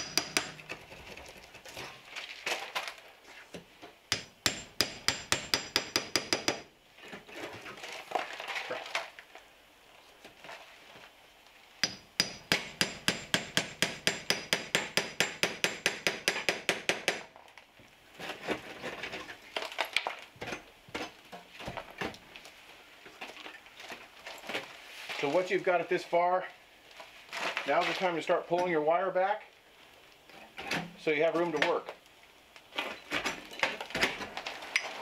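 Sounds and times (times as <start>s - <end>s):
hammer tapping on hammer: 0.0s - 0.6s, 4.1s - 6.7s, 11.8s - 17.2s
stucco scraping: 18.1s - 19.8s.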